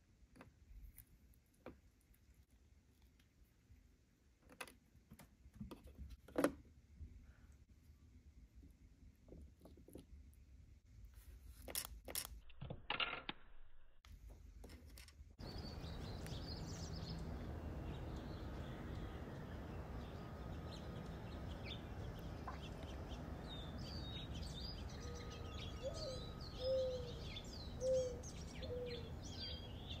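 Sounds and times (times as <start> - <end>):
small birds chirping: 15.4 - 30.0
short low bird calls: 23.6 - 30.0.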